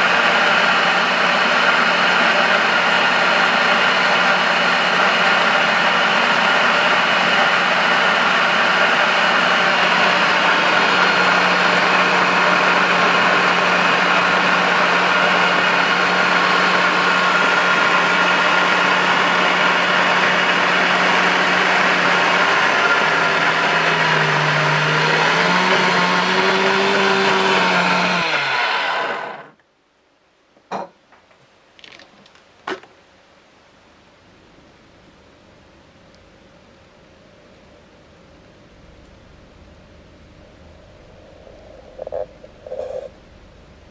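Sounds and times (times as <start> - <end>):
blender motor running: 0.0 - 29.6.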